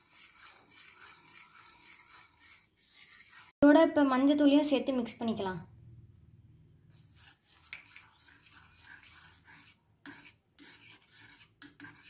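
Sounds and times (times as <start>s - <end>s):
spoon scraping bowl: 0.0s - 3.6s, 6.9s - 12.0s.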